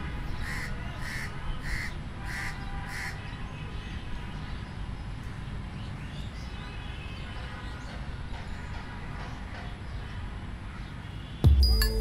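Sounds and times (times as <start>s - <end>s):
crow cawing: 0.4s - 3.2s.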